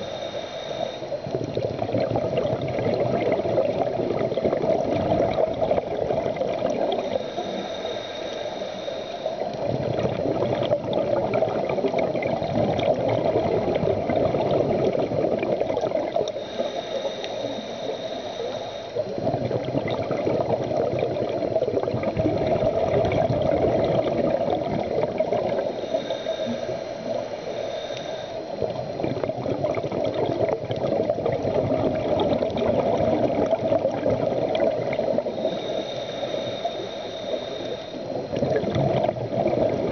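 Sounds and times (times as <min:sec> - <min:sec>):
faint high whistle: 0:00.0 - 0:01.1, 0:07.0 - 0:09.4, 0:16.4 - 0:19.0, 0:25.8 - 0:28.5, 0:35.3 - 0:38.2
diver exhaling bubbles underwater: 0:01.1 - 0:07.9, 0:09.4 - 0:17.8, 0:19.0 - 0:27.4, 0:28.4 - 0:39.9.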